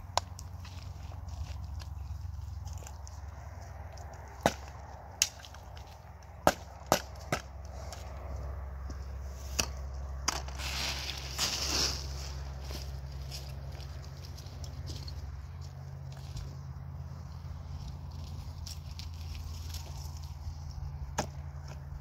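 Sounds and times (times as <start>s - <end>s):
steady low hum: 0.0s - 22.0s
rustling scraping rush: 10.4s - 14.9s.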